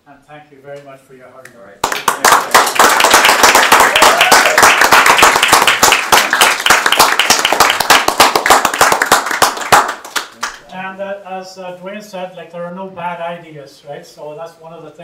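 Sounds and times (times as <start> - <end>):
people applauding: 1.8 - 10.6.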